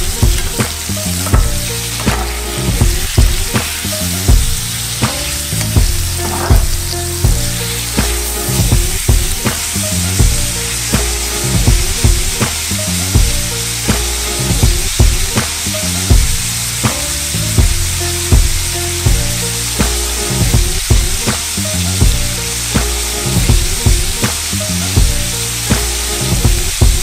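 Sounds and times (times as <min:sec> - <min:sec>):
background music with steady beat: 0:00.0 - 0:27.0
beef sizzling in frying pan: 0:00.0 - 0:27.0
spatula scraping pan: 0:05.1 - 0:07.2.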